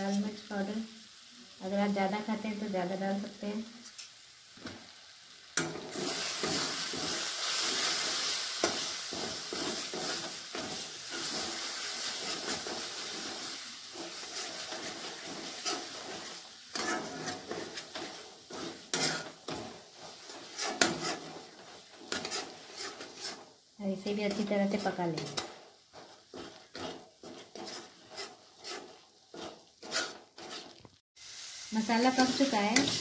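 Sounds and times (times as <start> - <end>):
paste sizzling in oil: 0.0 - 33.0
spatula scraping and tapping pan: 5.6 - 23.6, 24.2 - 31.0.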